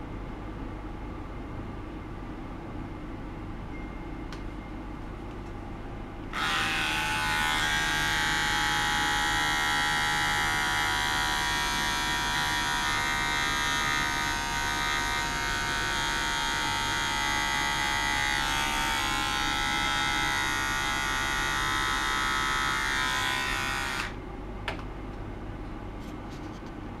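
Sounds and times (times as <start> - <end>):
electric buzz of vibrating bowl: 6.3 - 24.2.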